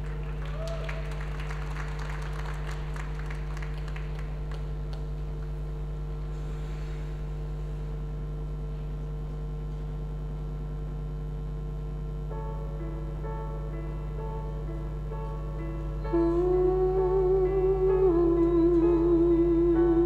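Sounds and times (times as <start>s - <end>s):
audience applause: 0.0s - 5.7s
electrical hum: 0.0s - 20.0s.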